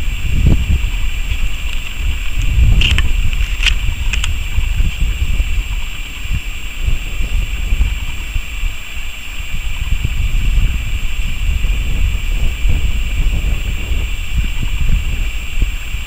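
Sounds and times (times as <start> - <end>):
distant freight train rumble: 0.0 - 16.0
steady high hiss: 0.0 - 16.0
wind buffeting microphone: 0.0 - 16.0.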